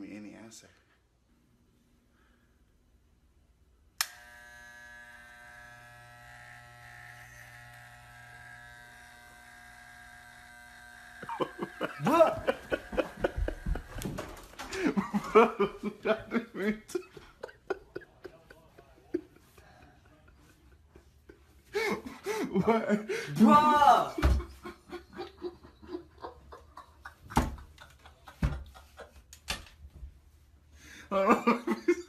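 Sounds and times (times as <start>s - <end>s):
hair clippers switch click: 4.0s - 4.8s
hair clippers buzzing: 4.0s - 14.4s.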